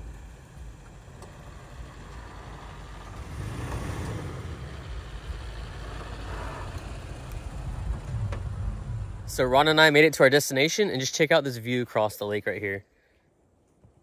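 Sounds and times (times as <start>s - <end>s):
pickup truck engine running: 0.0s - 10.0s
tyres rolling over loose dirt: 0.0s - 10.2s.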